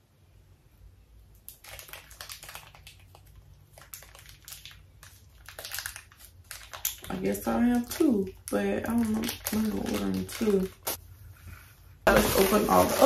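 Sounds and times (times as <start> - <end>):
packaging crinkling: 1.5 - 11.0, 12.1 - 13.0.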